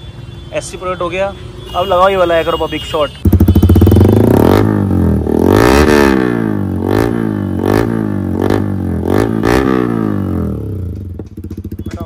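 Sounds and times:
motorcycle engine revving: 3.2 - 12.0.

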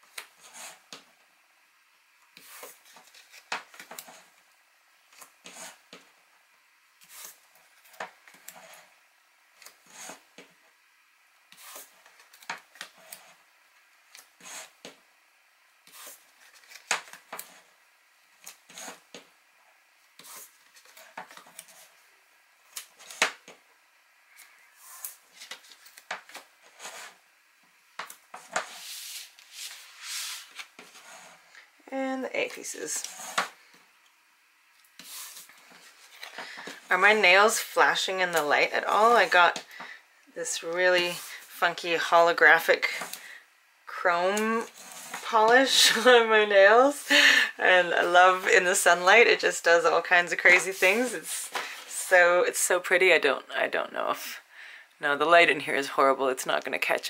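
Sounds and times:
paper rustling: 2.4 - 4.2, 15.9 - 17.6, 24.8 - 27.2, 28.3 - 31.6.

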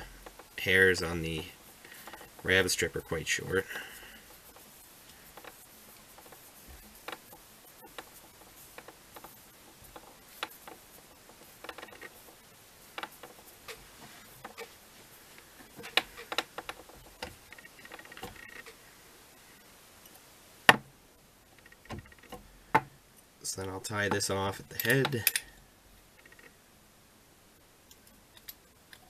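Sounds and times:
soft rustles of hands: 0.0 - 20.3
light clicks and ticks of tools: 20.0 - 20.3, 24.0 - 25.6, 27.8 - 29.0.

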